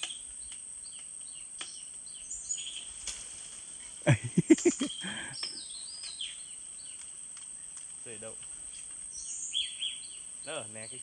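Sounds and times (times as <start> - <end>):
high insect drone: 0.0 - 11.0
bird chirps: 3.8 - 7.7, 8.7 - 11.0.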